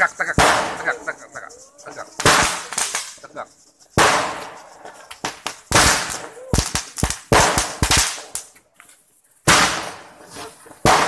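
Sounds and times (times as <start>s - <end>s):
fireworks bangs and pops: 0.0s - 1.3s, 2.0s - 11.0s
loud firework bang: 0.4s - 0.9s, 4.0s - 4.6s, 9.5s - 10.1s.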